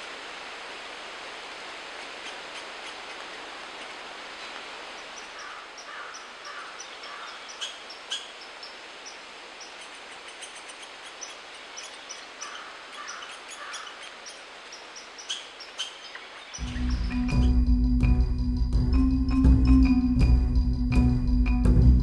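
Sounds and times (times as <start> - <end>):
steady background hiss: 0.0 - 21.7
bird chirps and calls: 4.9 - 17.8.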